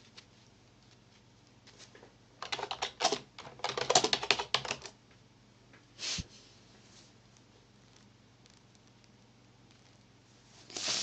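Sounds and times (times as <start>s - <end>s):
computer keyboard typing: 2.4s - 5.0s.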